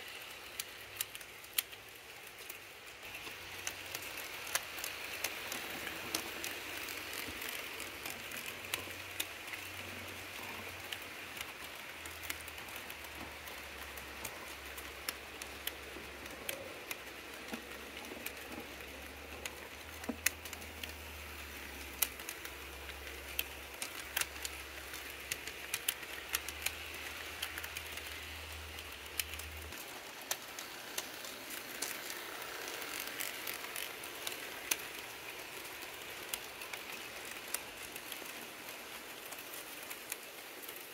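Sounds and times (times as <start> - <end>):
model train rolling hiss: 0.0 - 40.9
wheels clicking over rail joints: 0.0 - 40.9.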